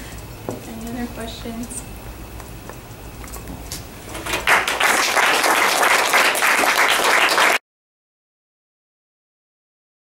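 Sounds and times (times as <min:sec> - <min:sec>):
audience applauding: 0:04.2 - 0:07.6.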